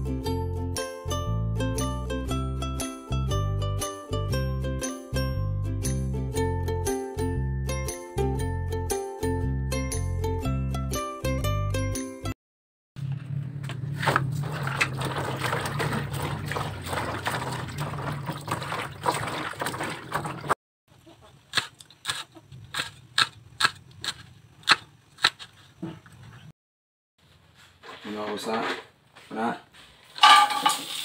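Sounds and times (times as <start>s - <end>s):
water sloshing in a basin: 14.0s - 20.6s.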